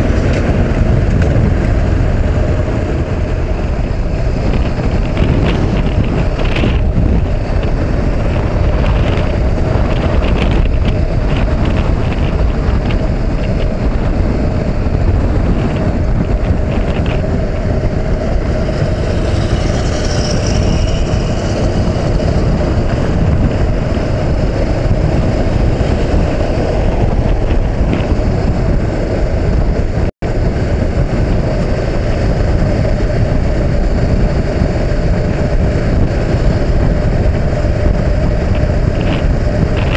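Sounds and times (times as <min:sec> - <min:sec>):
motorcycle engine running: 0:00.0 - 0:39.9
wind rushing over microphone: 0:00.0 - 0:39.9.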